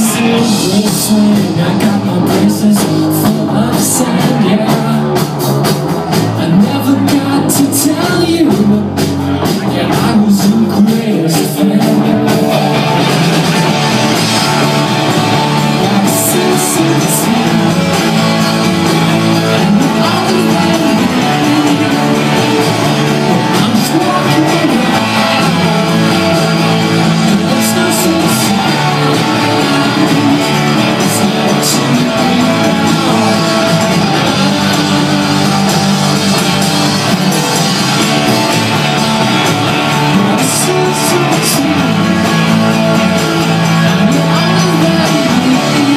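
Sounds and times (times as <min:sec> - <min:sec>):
rock band playing live: 0:00.0 - 0:45.9.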